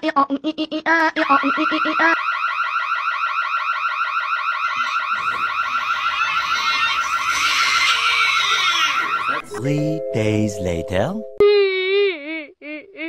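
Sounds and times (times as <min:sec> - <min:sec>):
electronic alarm sweeping tone: 0:01.2 - 0:07.3.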